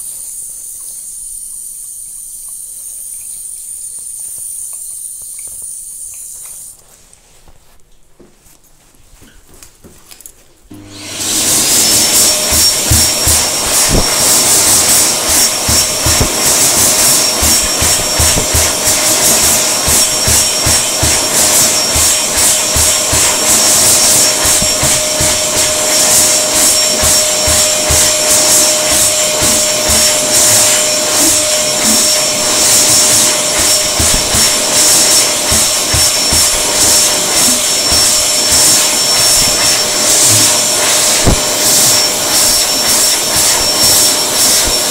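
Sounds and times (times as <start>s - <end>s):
hand dryer whine: 0.0s - 6.8s, 10.7s - 44.9s
hand dryer blowing air: 10.7s - 44.9s.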